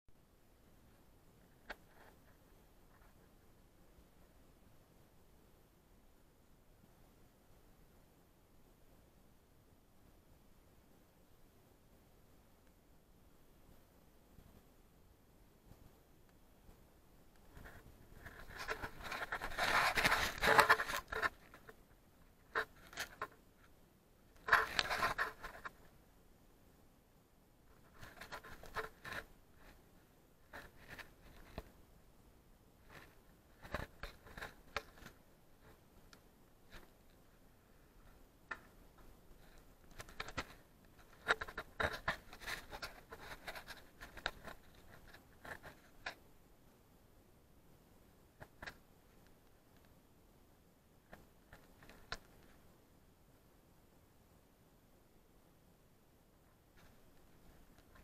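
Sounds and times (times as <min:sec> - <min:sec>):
clothing scraping against rock: 0:17.7 - 0:21.4.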